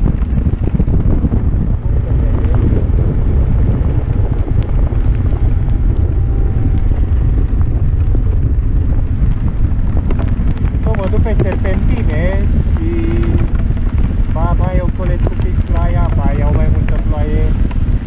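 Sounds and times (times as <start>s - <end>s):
motorcycle engine running: 0.0s - 18.0s
tyres on wet road: 0.0s - 18.0s
wind buffeting microphone: 0.0s - 18.0s.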